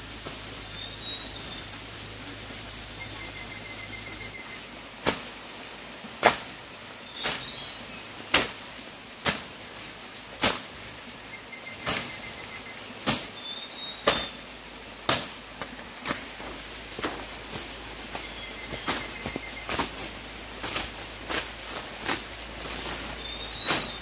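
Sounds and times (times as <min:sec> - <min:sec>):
faint bird chirps: 0:00.7 - 0:01.8, 0:02.9 - 0:04.7, 0:11.2 - 0:14.4, 0:18.0 - 0:19.8, 0:23.1 - 0:24.0
blade chopping grass: 0:08.3 - 0:08.6, 0:09.2 - 0:09.5, 0:10.4 - 0:10.7, 0:13.0 - 0:13.3, 0:14.0 - 0:14.4, 0:15.0 - 0:24.0.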